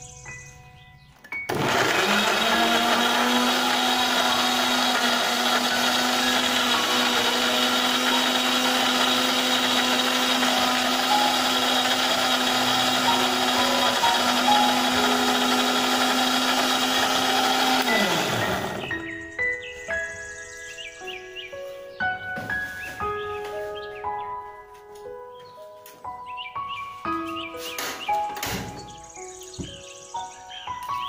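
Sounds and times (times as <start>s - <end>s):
electric blender grinding: 1.5s - 19.0s.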